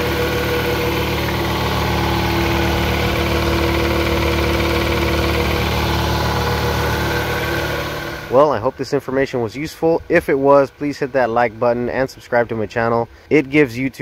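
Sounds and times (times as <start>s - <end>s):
air compressor running: 0.0s - 9.0s.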